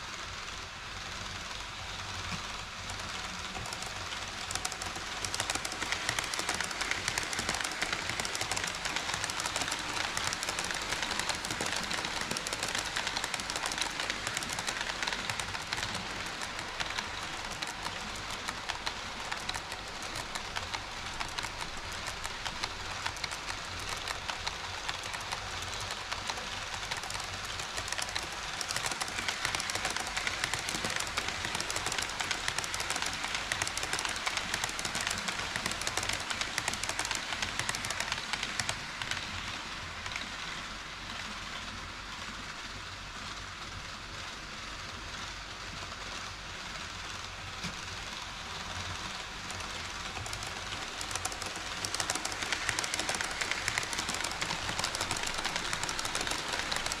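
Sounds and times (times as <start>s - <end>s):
model train wheels clattering: 0.0s - 57.0s.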